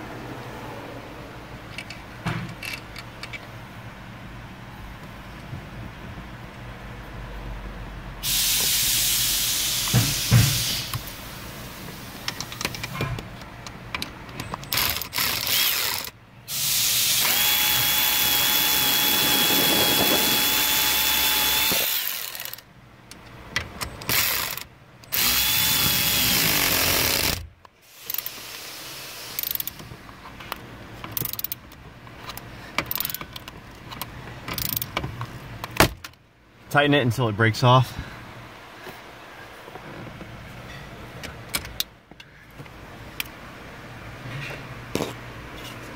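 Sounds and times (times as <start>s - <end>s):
tools clicking and rattling: 1.7s - 3.5s, 12.2s - 16.2s, 29.4s - 36.2s
power tool running: 14.7s - 22.6s, 24.1s - 27.4s.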